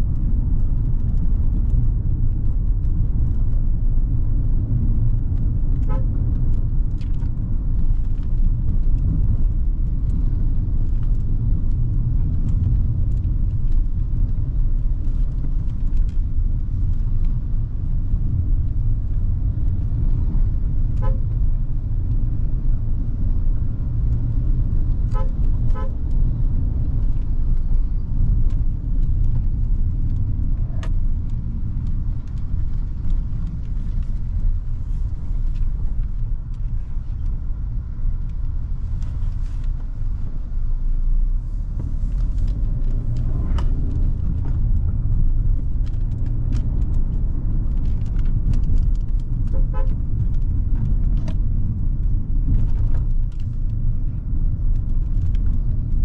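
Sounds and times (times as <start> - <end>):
car engine and road noise: 0.0 - 56.0
car horn toots: 21.0 - 21.3, 25.1 - 25.9, 49.5 - 49.9.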